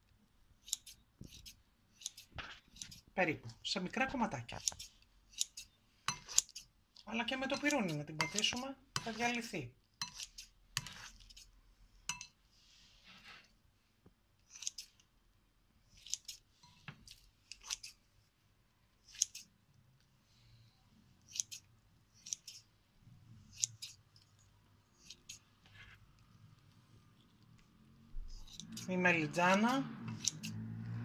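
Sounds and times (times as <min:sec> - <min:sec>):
scissors snipping: 0:00.6 - 0:03.0, 0:04.5 - 0:06.7, 0:16.0 - 0:16.4, 0:19.0 - 0:19.5, 0:21.3 - 0:22.6, 0:23.5 - 0:24.3, 0:28.3 - 0:30.6.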